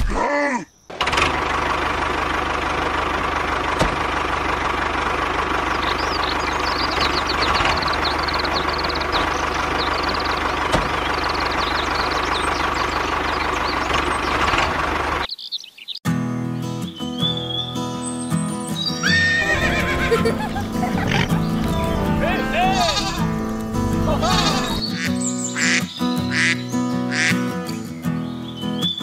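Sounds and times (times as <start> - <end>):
tractor engine chugging: 0.9 - 15.3, 19.1 - 26.5
high chirping: 5.7 - 14.4, 16.8 - 27.4.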